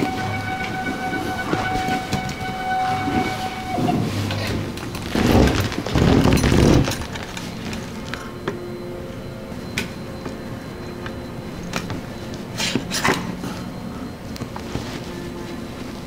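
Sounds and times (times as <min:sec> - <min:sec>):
hose rustling scrape: 0:00.0 - 0:06.9.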